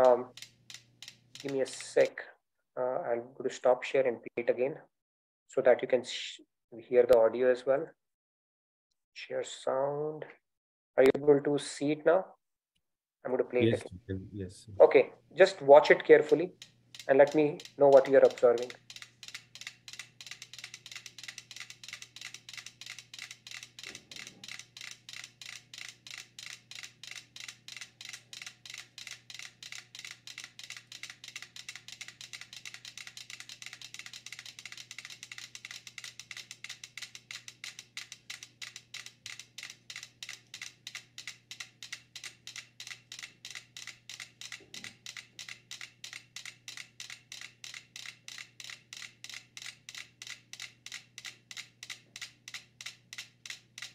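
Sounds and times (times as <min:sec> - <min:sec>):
metronomes ticking: 0:15.5 - 0:53.9.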